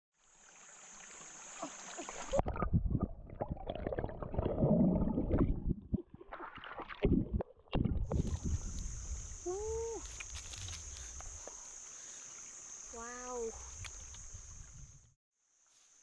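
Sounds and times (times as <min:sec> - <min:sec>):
splashing and rustling in water: 0:00.4 - 0:02.8, 0:05.9 - 0:08.6, 0:10.0 - 0:12.7
high insect drone: 0:08.1 - 0:16.0.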